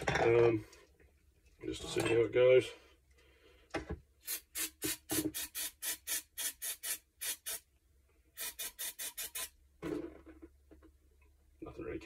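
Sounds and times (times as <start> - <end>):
aerosol spray hissing bursts: 4.2 - 7.6, 8.4 - 9.5.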